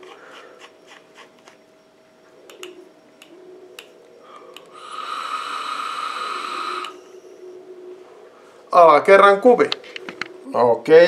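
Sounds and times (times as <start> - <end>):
light clicks: 2.5 - 4.7
hiss of air through vape tank: 4.7 - 7.0.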